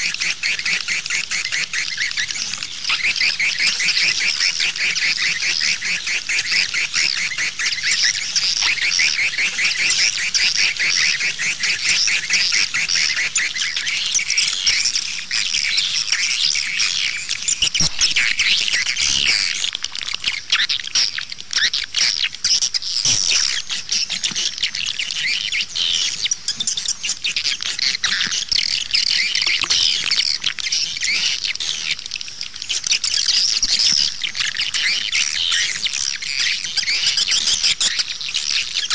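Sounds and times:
swiftlets twittering chirps: 0:00.3 - 0:23.8.

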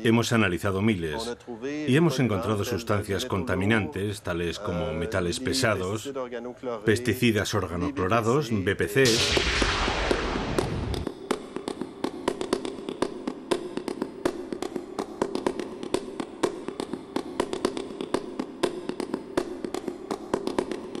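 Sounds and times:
dense crackling clicks: 0:09.1 - 0:13.1.

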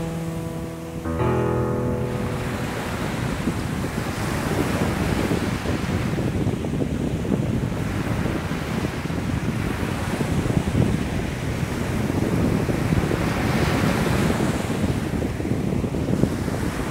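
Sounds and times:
wind on microphone rumble: 0:03.4 - 0:16.9.

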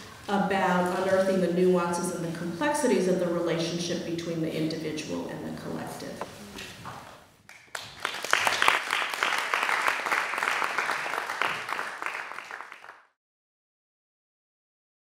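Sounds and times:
applause: 0:07.5 - 0:13.2.

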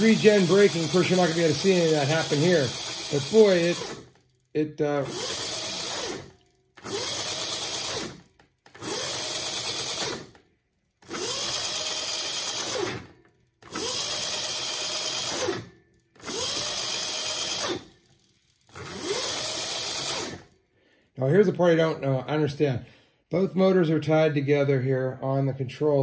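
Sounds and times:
electric motor whine: 0:00.0 - 0:04.2, 0:05.0 - 0:10.4, 0:11.0 - 0:15.6, 0:16.2 - 0:17.9, 0:18.7 - 0:20.5.

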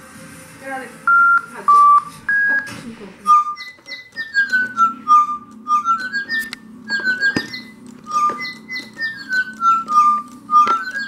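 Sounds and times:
toy birds whistling a tune: 0:03.3 - 0:11.0.

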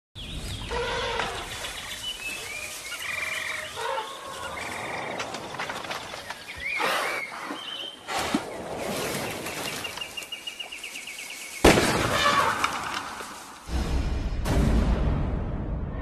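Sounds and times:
birds chirping and whistling: 0:00.2 - 0:11.7.

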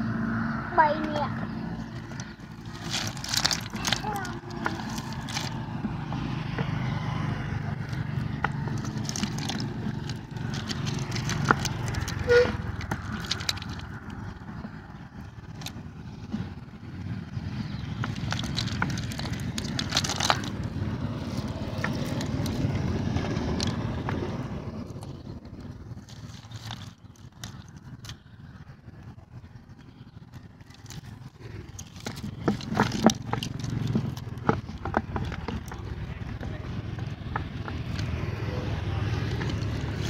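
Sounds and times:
steady low rumble: 0:00.0 - 0:40.0
hands picking catch from fishing net: 0:01.9 - 0:05.8, 0:07.8 - 0:14.3, 0:17.9 - 0:22.8, 0:25.9 - 0:28.3, 0:30.3 - 0:38.3.

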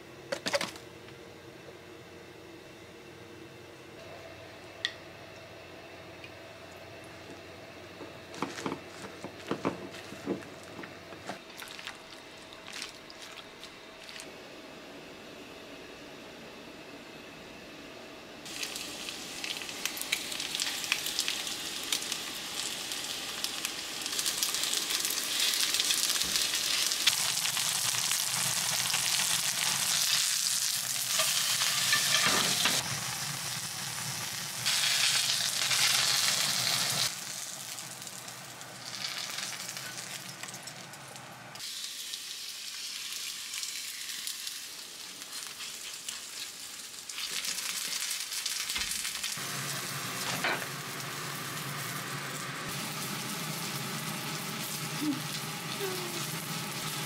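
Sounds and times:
batter sizzling in hot oil: 0:18.4 - 0:40.9, 0:41.6 - 0:57.0.

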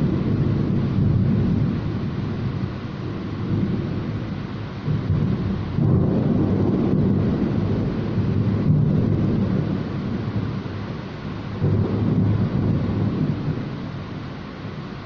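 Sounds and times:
heavy rain rushing: 0:00.0 - 0:15.0
low rumble of thunder: 0:00.0 - 0:15.0.

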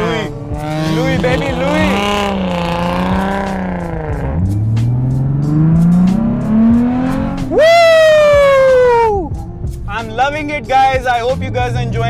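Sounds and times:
car engine from inside cabin: 0:00.0 - 0:07.5.

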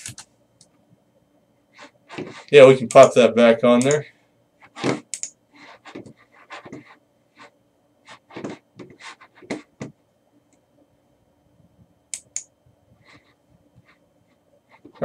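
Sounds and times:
keyboard and mouse clicks: 0:05.1 - 0:05.3.

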